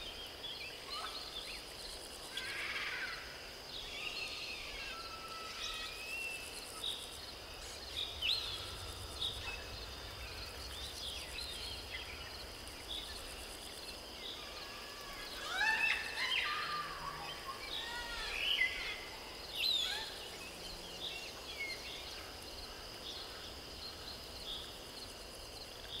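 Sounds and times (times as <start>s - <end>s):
high-pitched insect drone: 1.0s - 20.8s
birds chirping: 5.8s - 22.2s.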